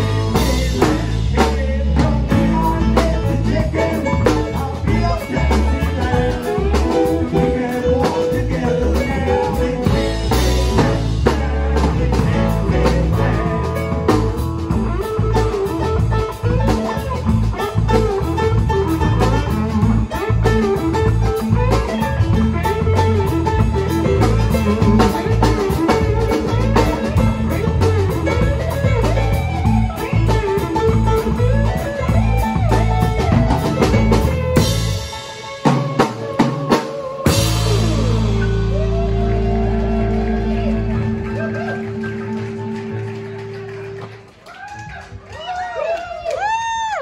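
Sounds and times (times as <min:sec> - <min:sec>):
electric guitar lead with bends: 0:00.0 - 0:44.5
live rock band playing: 0:00.0 - 0:46.5.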